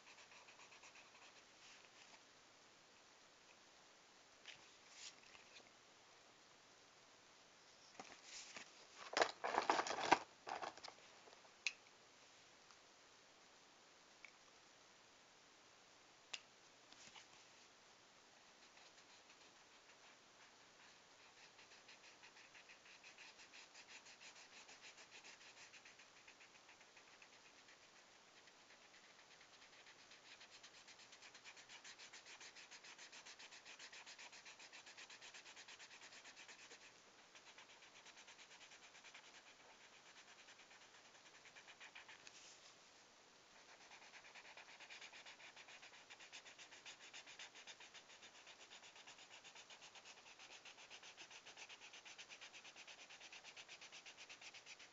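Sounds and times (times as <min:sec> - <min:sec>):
marker rubbing on paper: 0:18.6 - 0:42.3, 0:43.6 - 0:54.9.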